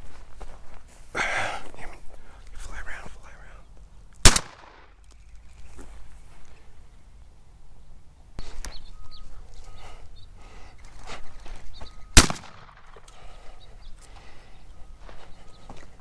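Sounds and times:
footsteps in dry brush: 0.0 - 3.0, 5.0 - 6.9, 8.4 - 16.0
shotgun shot: 4.2 - 4.9, 12.2 - 13.1
rustling through dry brush: 5.0 - 7.2, 8.4 - 16.0.

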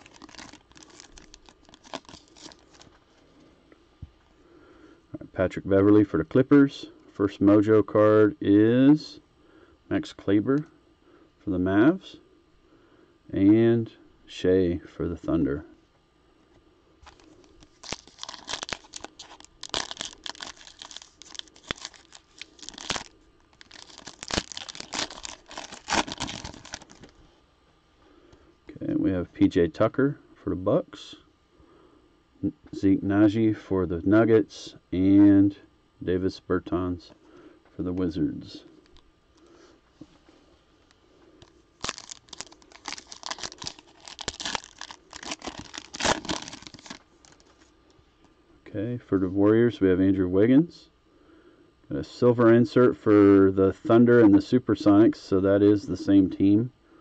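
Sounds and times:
foil wrapper tearing and crinkling: 0.0 - 2.9, 17.0 - 27.1, 41.8 - 47.5.

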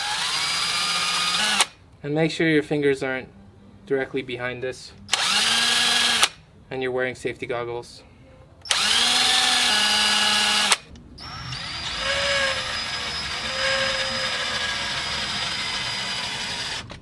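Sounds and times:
cordless drill running: 0.0 - 1.7, 5.1 - 6.4, 8.7 - 16.9.

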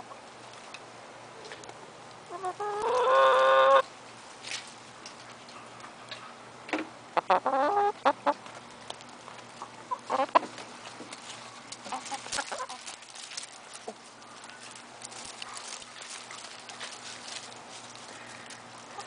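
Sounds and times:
chickens clucking: 2.2 - 3.9, 7.1 - 8.6, 9.4 - 19.0.

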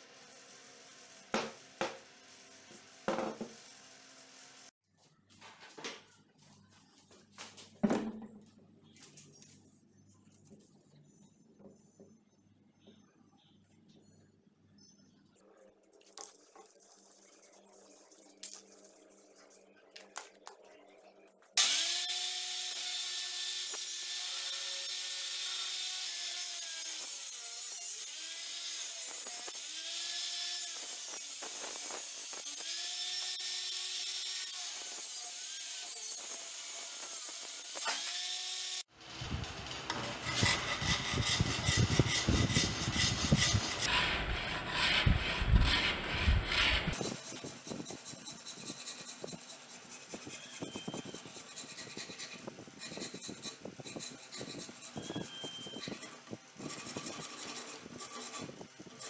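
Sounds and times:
table saw cutting wood: 21.6 - 59.0
rasp strokes on wood: 40.2 - 59.0.

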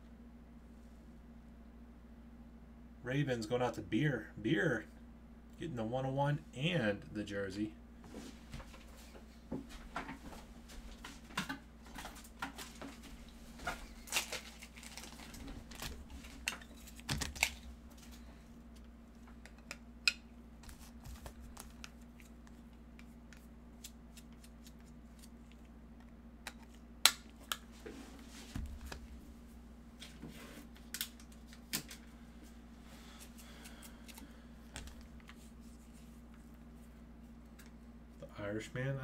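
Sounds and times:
steady low hum: 0.0 - 39.0
trading cards and packaging handled: 13.6 - 18.9, 20.6 - 25.7.

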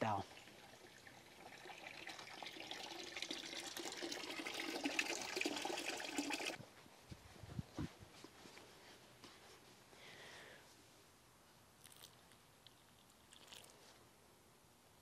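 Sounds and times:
water running into watering can: 0.0 - 6.6.

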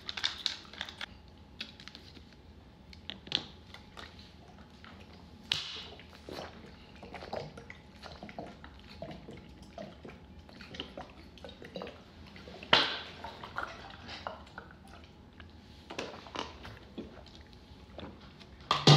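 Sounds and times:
water glugging from bottle: 5.2 - 15.3.

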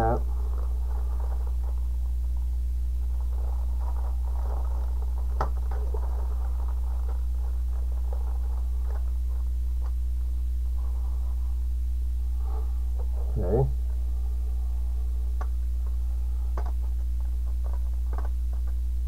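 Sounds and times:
low electrical hum: 0.0 - 19.0
plastic wrapping crinkling: 0.3 - 10.0.

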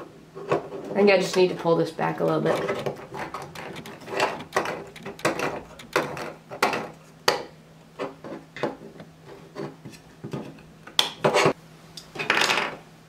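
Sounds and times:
plastic parts clicking and scraping: 2.2 - 6.9.

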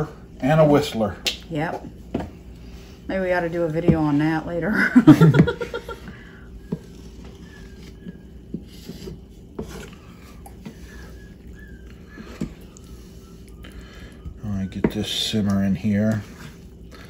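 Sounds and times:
low steady hum: 0.0 - 17.0
wooden spoon scraping pan: 6.6 - 11.4.

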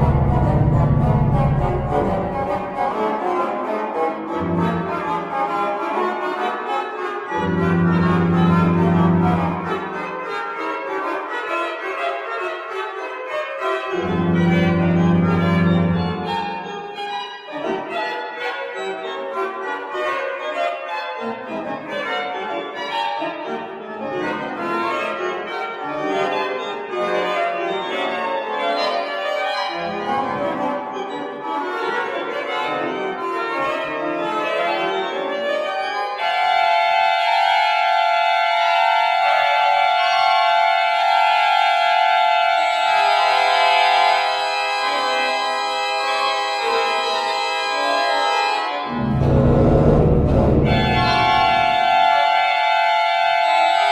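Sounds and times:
pipe organ playing: 0.0 - 53.9.

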